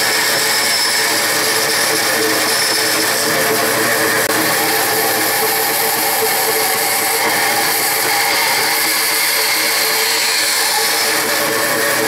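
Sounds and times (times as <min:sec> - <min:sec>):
bandsaw cutting metal tubing: 0:00.0 - 0:12.0.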